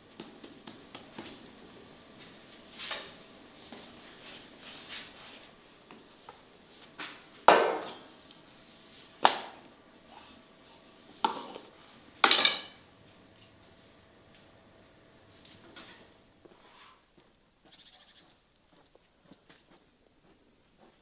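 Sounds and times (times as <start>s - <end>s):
cookware knocking: 12.2s - 12.8s.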